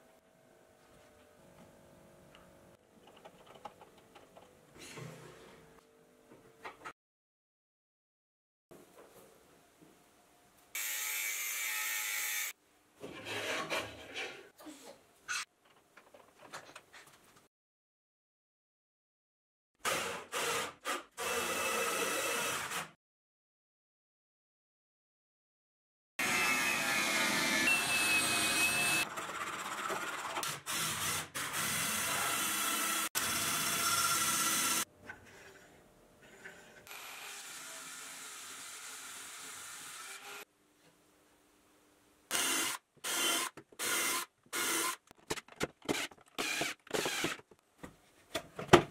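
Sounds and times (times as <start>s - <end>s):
electric drill boring into plastic: 19.9s - 22.9s, 26.2s - 29.1s, 29.9s - 34.9s, 42.3s - 45.0s, 45.9s - 47.4s.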